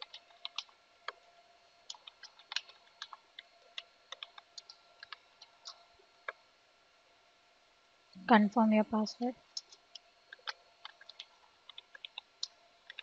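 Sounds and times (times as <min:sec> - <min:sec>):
keyboard typing: 0:00.0 - 0:01.2, 0:01.8 - 0:06.4, 0:09.5 - 0:13.0.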